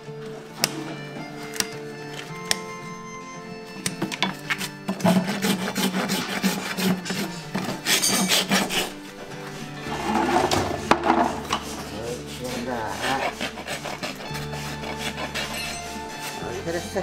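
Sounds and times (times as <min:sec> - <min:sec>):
rasp filing hoof: 0:00.1 - 0:17.0.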